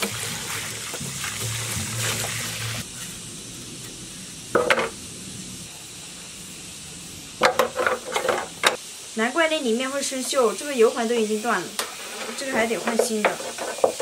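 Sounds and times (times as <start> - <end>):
water splash: 0.0 - 2.8
water pouring from a hose: 0.0 - 3.2.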